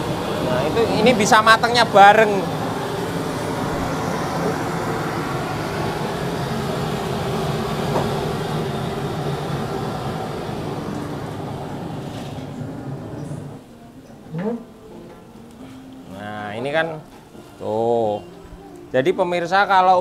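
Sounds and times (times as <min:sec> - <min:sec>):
hot oil hissing in a wok: 0:00.0 - 0:11.4
stove burner roaring: 0:00.0 - 0:13.7.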